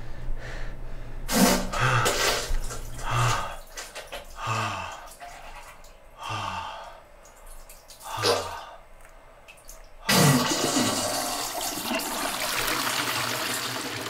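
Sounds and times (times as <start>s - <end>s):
diarrhea splattering into toilet: 1.3s - 4.4s.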